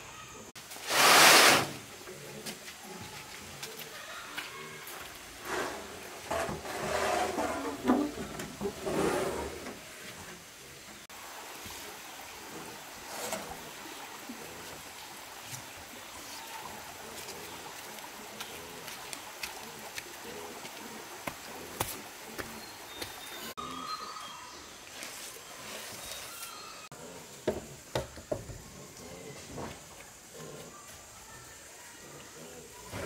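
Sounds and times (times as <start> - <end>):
roofing sheets scraping and clattering: 5.4 - 9.8.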